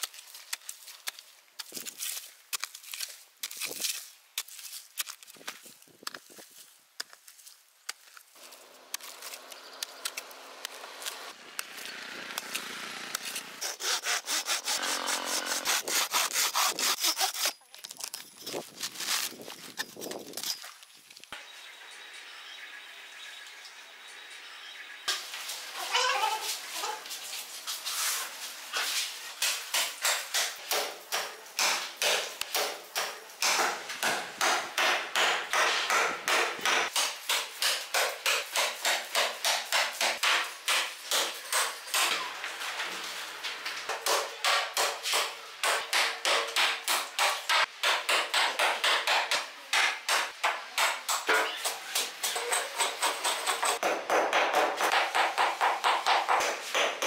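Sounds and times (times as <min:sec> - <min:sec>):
hatchet chopping into wood: 0:29.4 - 0:42.2, 0:43.9 - 0:57.0.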